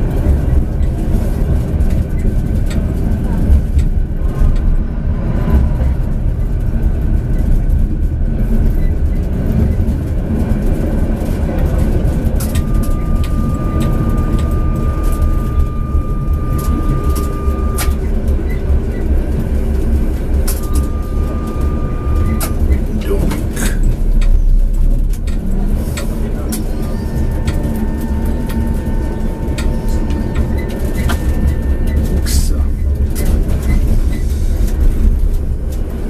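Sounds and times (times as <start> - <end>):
tram rumbling on rails: 0.0 - 36.0
steady high tone: 11.9 - 24.6, 25.6 - 33.0.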